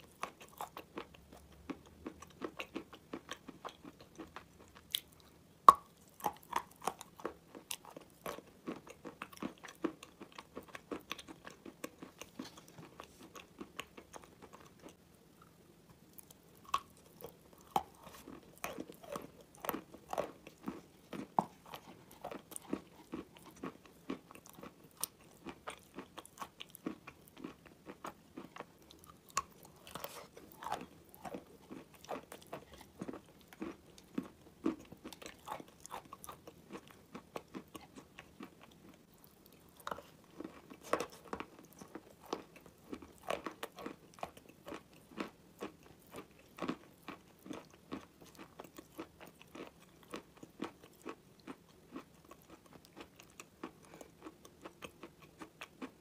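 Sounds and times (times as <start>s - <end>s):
chalk being chewed: 16.7s - 55.9s.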